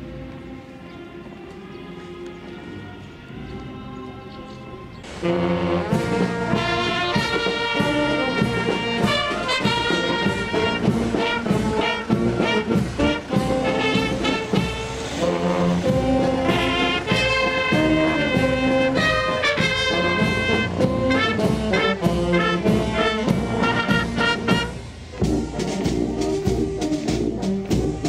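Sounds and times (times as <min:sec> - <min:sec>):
brass band playing: 0:04.8 - 0:28.0
sharp drum strokes: 0:05.1 - 0:28.0.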